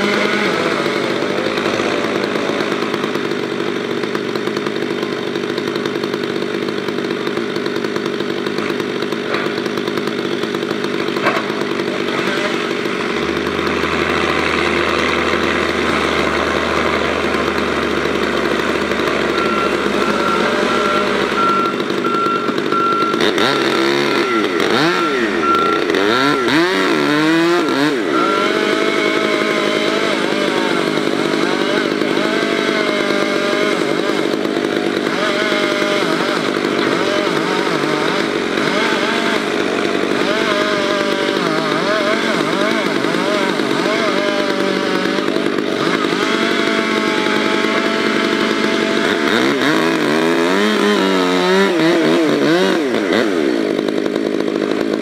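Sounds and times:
chainsaw cutting tree: 0:00.0 - 0:55.0
short high beeps: 0:19.4 - 0:23.4, 0:24.9 - 0:26.0, 0:28.2 - 0:28.6.

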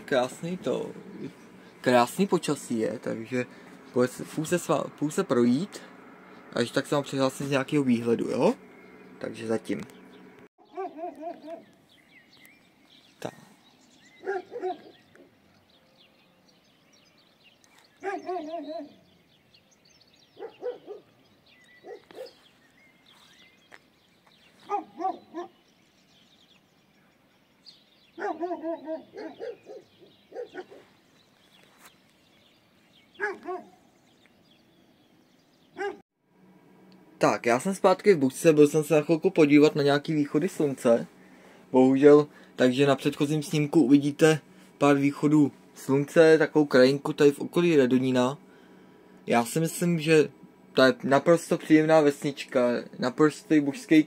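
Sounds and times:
dogs barking: 0:10.6 - 0:11.7, 0:14.2 - 0:15.3, 0:18.0 - 0:19.0, 0:20.3 - 0:21.2, 0:21.8 - 0:22.4, 0:24.6 - 0:25.6, 0:28.1 - 0:31.0, 0:33.2 - 0:33.9, 0:35.7 - 0:36.0.

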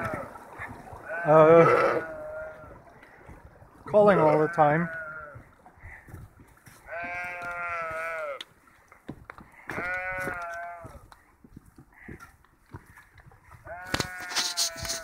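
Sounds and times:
sheep bleating: 0:00.0 - 0:00.4, 0:01.0 - 0:02.8, 0:04.0 - 0:05.4, 0:06.8 - 0:08.5, 0:09.7 - 0:11.1, 0:13.6 - 0:15.0.

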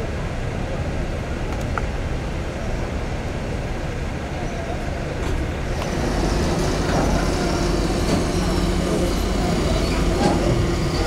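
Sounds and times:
engines and traffic rumble: 0:00.0 - 0:11.0
ferry humming: 0:02.6 - 0:11.0.

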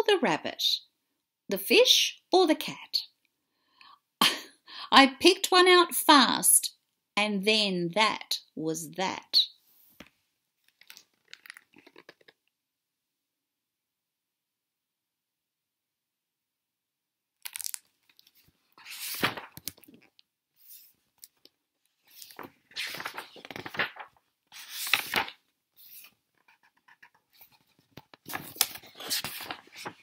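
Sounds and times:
rustling and scraping handling noise: 0:18.0 - 0:30.0.

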